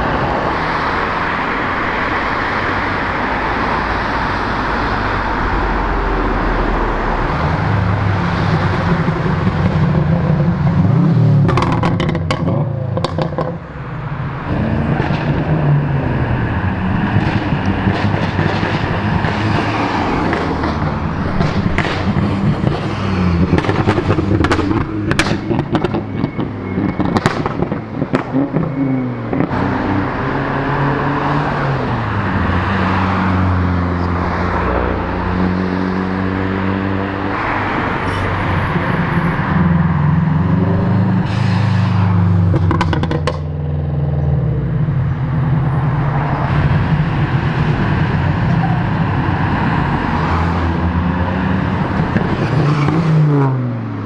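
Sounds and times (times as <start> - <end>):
cars driving past revving: 0.0 - 54.0
exhaust pops and crackles: 20.2 - 26.0, 26.8 - 28.4.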